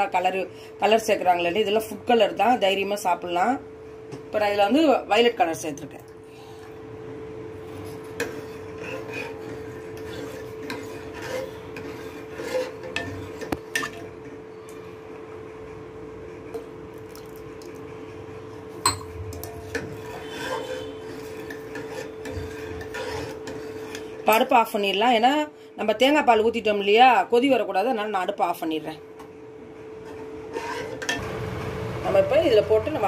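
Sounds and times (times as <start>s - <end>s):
steady hum: 0.1s - 33.0s
ladle scraping metal pot: 7.6s - 14.1s, 18.9s - 24.7s, 29.9s - 31.3s.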